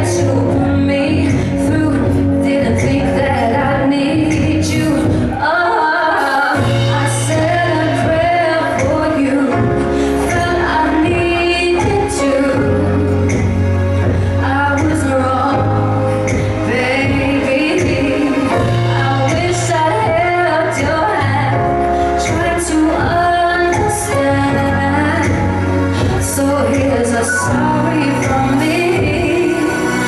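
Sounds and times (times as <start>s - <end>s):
band playing pop song: 0.0s - 30.0s
bass line: 0.0s - 30.0s
woman singing into a microphone: 0.0s - 30.0s.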